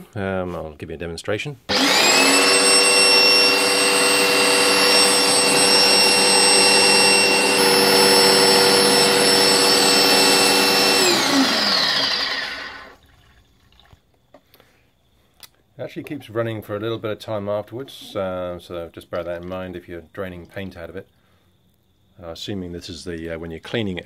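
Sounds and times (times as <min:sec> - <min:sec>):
electric pump motor whining: 0:01.7 - 0:13.0.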